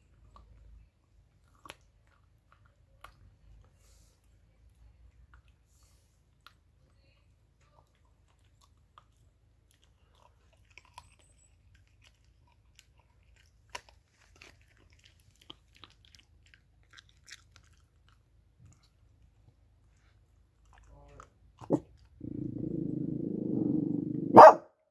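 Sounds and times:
dog chewing on bone: 7.7s - 22.4s.

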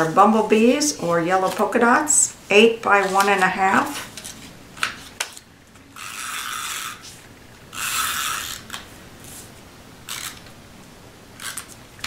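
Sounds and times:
tape runner ratcheting whir: 5.9s - 8.8s, 10.1s - 10.5s.

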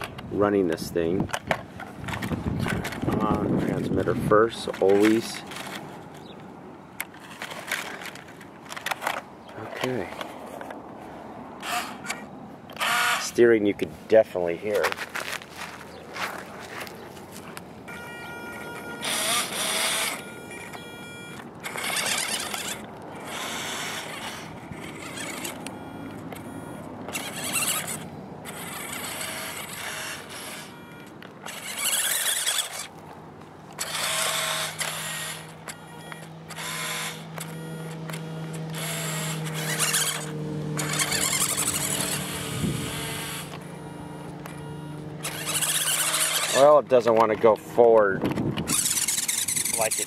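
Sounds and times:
toy motor whirring: 7.0s - 9.2s, 11.6s - 13.4s, 18.3s - 33.0s, 33.7s - 47.6s, 48.2s - 50.0s.

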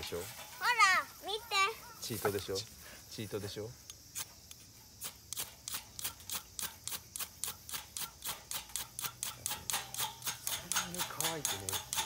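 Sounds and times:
fire steel rod scraped with striker: 3.9s - 12.0s.

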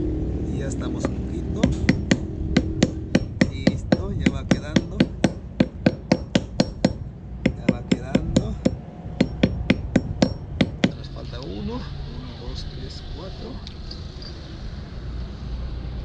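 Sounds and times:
hammer striking metal on stone: 0.9s - 11.0s.

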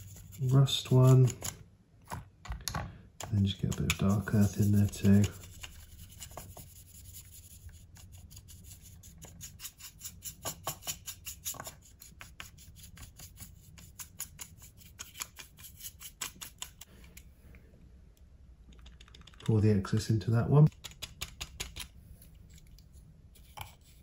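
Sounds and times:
brush scrubbing plastic: 0.0s - 1.6s, 3.4s - 16.8s.

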